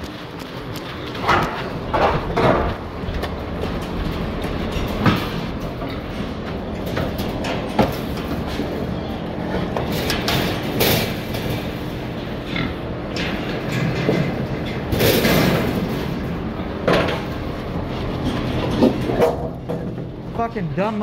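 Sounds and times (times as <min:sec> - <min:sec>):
steady hum: 0:00.0 - 0:21.0
metal gates rattling and clanking: 0:00.6 - 0:20.3.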